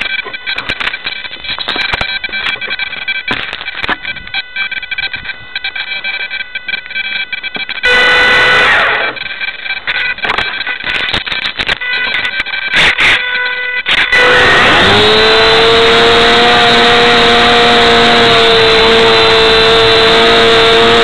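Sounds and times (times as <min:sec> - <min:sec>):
electric motor and propeller whining: 0:06.7 - 0:11.3, 0:13.8 - 0:21.0.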